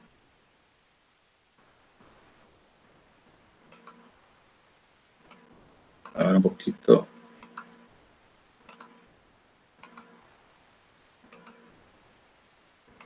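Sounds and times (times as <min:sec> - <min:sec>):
computer mouse clicks: 0:03.6 - 0:04.2, 0:05.2 - 0:06.2, 0:07.4 - 0:07.9, 0:08.6 - 0:09.1, 0:09.8 - 0:10.3, 0:11.2 - 0:11.8.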